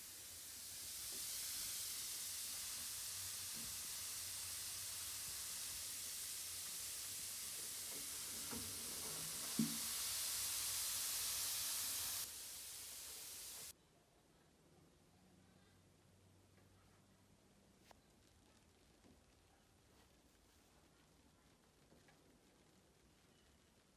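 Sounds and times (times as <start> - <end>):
bath bomb fizzing: 0.0 - 13.7.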